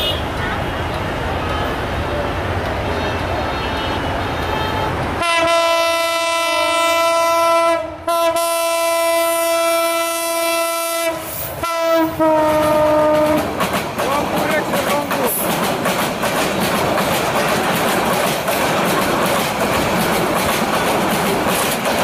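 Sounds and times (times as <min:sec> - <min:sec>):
train rumble: 0:00.0 - 0:22.0
locomotive air horn blowing: 0:03.4 - 0:13.5.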